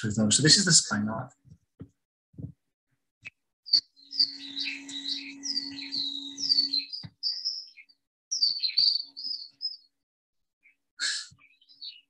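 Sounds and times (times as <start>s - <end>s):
skylark song: 3.2s - 10.0s, 10.6s - 12.0s.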